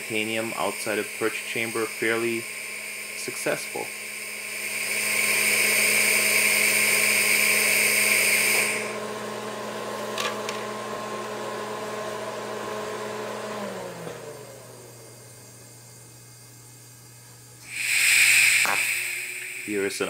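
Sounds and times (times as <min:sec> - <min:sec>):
welding arc hissing: 0:00.0 - 0:09.0, 0:17.6 - 0:20.0
welding machine hum: 0:00.0 - 0:09.0, 0:15.7 - 0:20.0.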